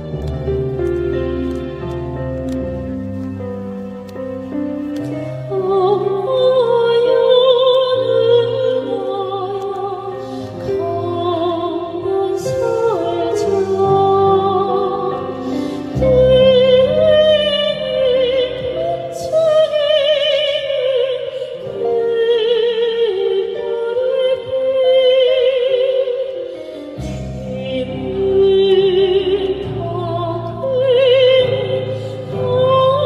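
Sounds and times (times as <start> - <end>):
women singing with vibrato: 5.2 - 33.0.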